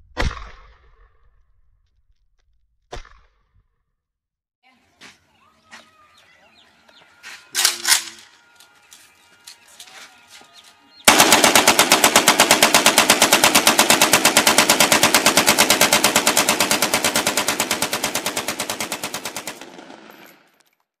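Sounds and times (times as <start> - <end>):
rifle automatic gunfire: 11.1 - 20.6.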